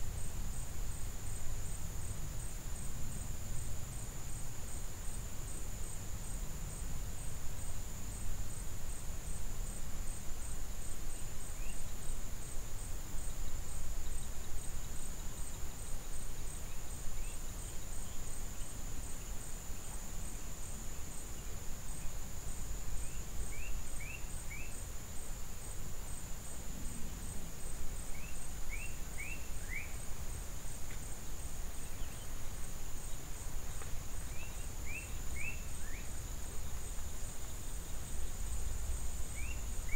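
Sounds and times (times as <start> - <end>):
high-pitched insect trill: 6.7 - 39.9.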